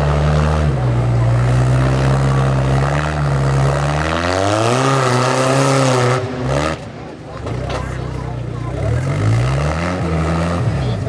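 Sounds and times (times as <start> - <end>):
buggy engine revving under load: 0.0 - 11.0.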